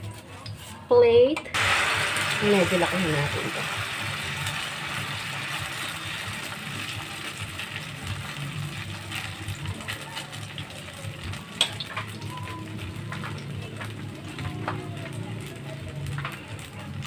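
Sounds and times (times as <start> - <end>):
batter sizzling in hot oil: 1.5 - 17.0.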